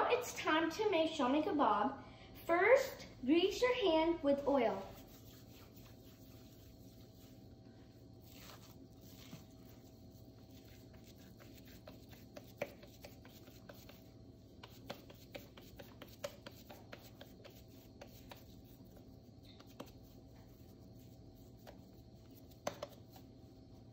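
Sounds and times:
hands patting kebab mixture: 8.3 - 23.4.

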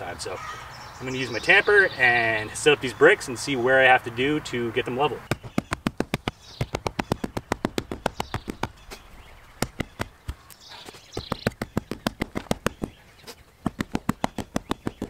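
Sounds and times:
faint bird chirps: 5.2 - 13.6
hand tamper pounding soil: 5.3 - 15.0.

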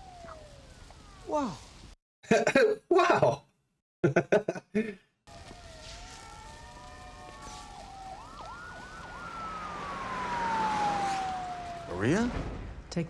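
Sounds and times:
emergency vehicle siren wailing: 0.0 - 1.9, 5.3 - 12.7.

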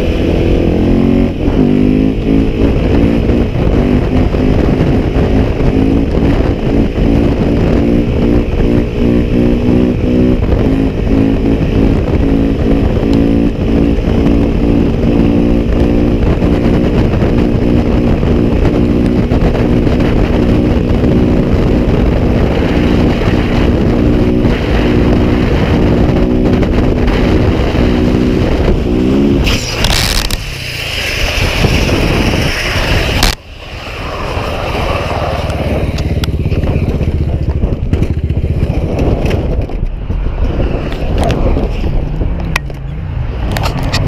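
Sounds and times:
motorcycle engine running: 0.0 - 30.5, 35.1 - 44.0
wind rush on microphone: 0.0 - 44.0
harsh scrape on asphalt: 27.0 - 37.3, 38.0 - 44.0.

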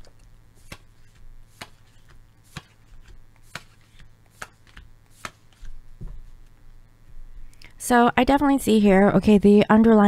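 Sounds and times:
cards slapping while shuffled: 0.6 - 6.4
deck of cards rustling: 0.6 - 6.4.

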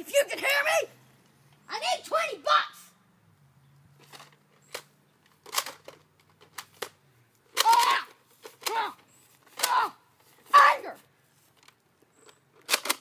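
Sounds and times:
person shouting: 1.7 - 2.9, 7.6 - 9.0, 9.6 - 11.0
plastic toy blaster clicks and rattles: 4.0 - 9.8, 11.6 - 13.0.

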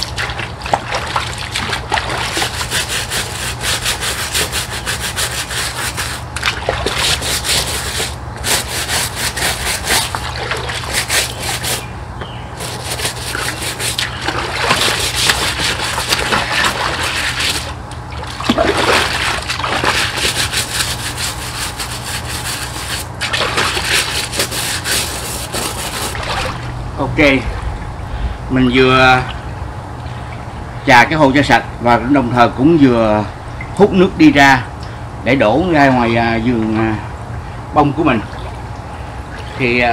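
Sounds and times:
water splashing around legs: 0.0 - 3.2, 13.0 - 20.6, 26.1 - 26.7
scrubbing pond liner: 0.0 - 27.4
low hum: 0.0 - 39.7.

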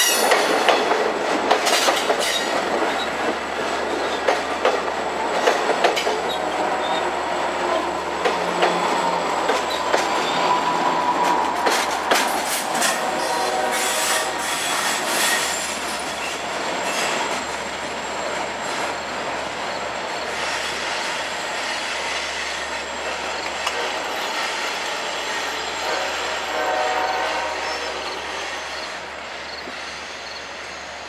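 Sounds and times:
wheels clacking over rail joints: 0.0 - 25.8
train wheels rushing on rails: 0.0 - 31.0
train horn: 6.0 - 15.8, 23.0 - 29.1.

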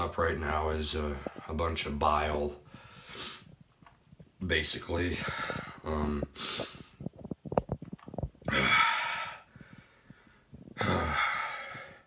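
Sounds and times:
gulping and gagging clicks: 5.2 - 8.6
man retching: 5.8 - 9.4, 10.6 - 12.0.

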